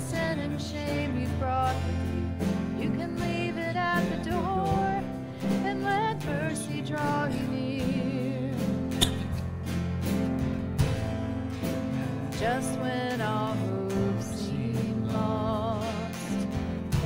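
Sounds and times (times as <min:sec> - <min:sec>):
person singing worship song: 0:00.0 - 0:08.7, 0:12.3 - 0:17.0
piano chords: 0:00.0 - 0:17.0.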